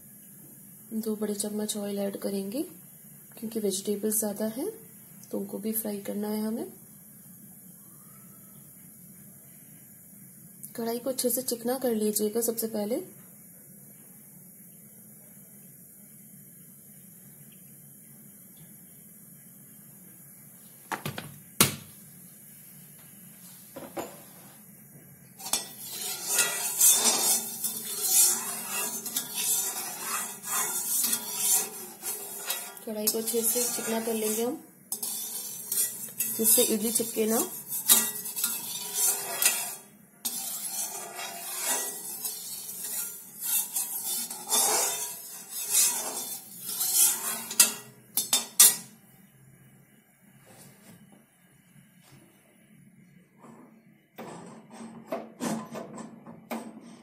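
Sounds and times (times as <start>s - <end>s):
metal spatula scraping pan: 25.4s - 48.8s.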